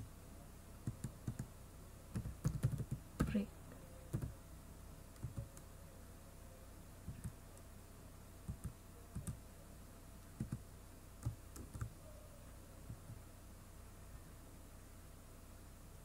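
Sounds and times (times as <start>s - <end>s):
keyboard key clicks: 5.2s - 5.7s, 10.4s - 10.6s.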